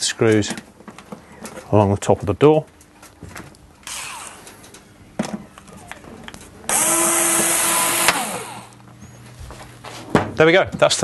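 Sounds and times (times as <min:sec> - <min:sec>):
power screwdriver whining: 0:03.8 - 0:04.5, 0:06.7 - 0:08.8.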